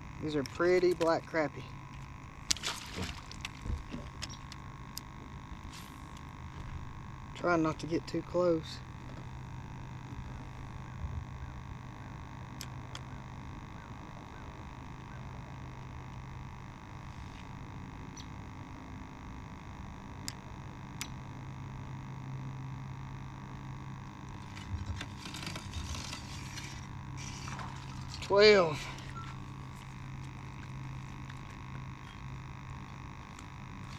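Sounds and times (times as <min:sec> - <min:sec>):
electric hum with whine: 0:00.0 - 0:33.9.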